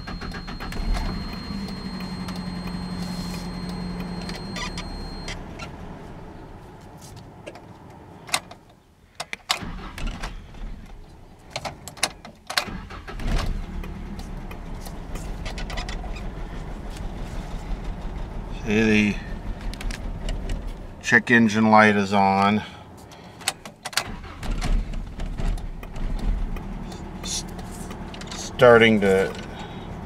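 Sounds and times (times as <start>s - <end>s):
engine cranking and starting: 0.0s - 5.8s, 9.6s - 11.9s, 12.5s - 20.9s, 23.4s - 30.0s.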